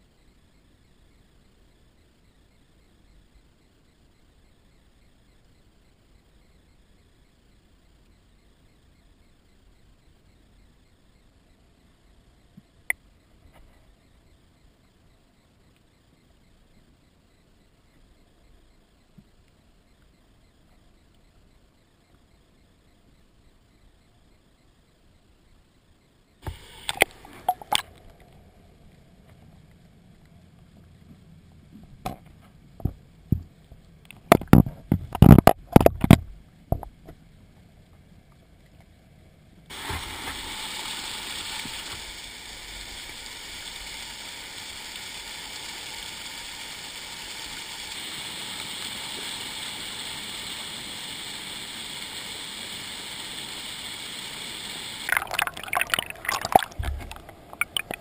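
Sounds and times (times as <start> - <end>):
underwater knocks and clunks: 34.2 - 36.9, 56.5 - 58.0.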